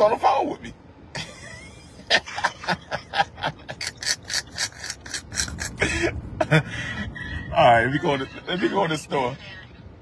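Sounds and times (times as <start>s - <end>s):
man laughing hard: 1.2s - 4.6s, 5.6s - 8.9s.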